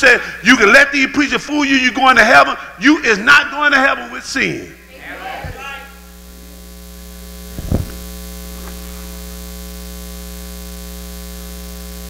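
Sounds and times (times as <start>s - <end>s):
electrical mains hum: 0.0s - 12.0s
thump: 7.6s - 8.0s.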